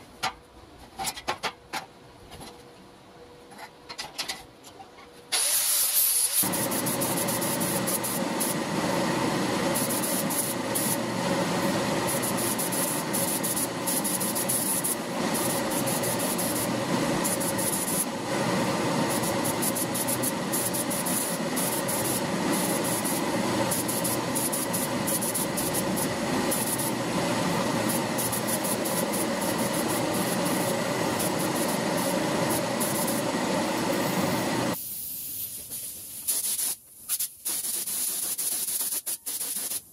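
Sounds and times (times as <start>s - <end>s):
air compressor running: 5.3s - 36.8s.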